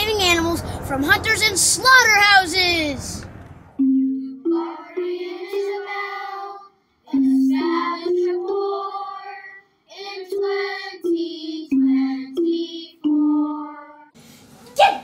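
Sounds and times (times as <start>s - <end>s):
child singing: 4.5s - 14.1s.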